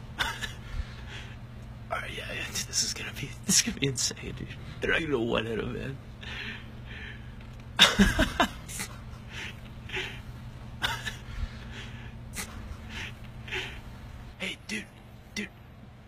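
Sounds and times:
person breathing huffs: 6.2s - 7.4s, 11.2s - 14.0s.

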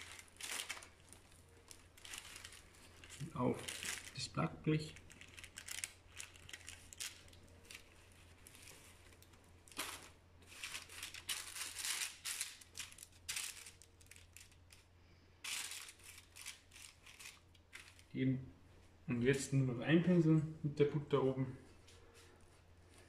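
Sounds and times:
parchment paper and cloth rustling: 0.0s - 18.2s.

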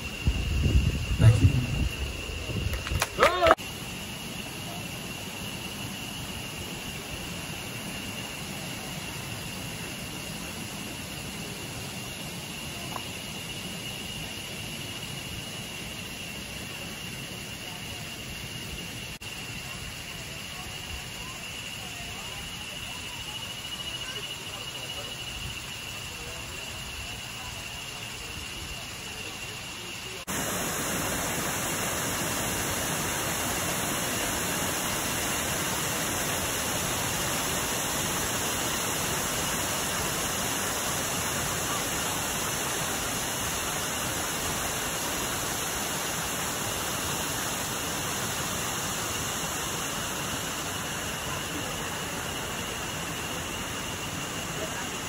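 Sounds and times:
high insect whine: 0.0s - 55.0s
waterfall rushing: 30.2s - 55.0s.

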